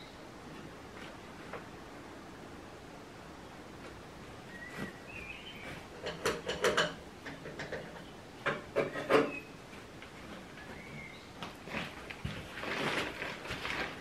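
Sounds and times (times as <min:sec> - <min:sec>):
high bird chirps: 0:04.5 - 0:05.8, 0:10.6 - 0:11.4
knocks and clinks of tools: 0:06.0 - 0:09.4.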